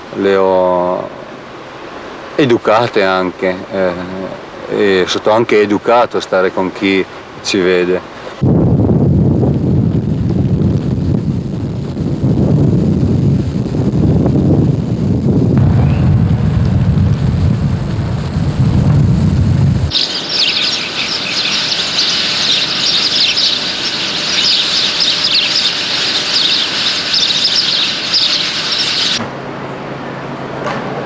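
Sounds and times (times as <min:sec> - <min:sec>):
low wind rumble: 0:00.0 - 0:30.4
faint steady hum: 0:00.0 - 0:30.6
small birds chirping: 0:19.9 - 0:29.2.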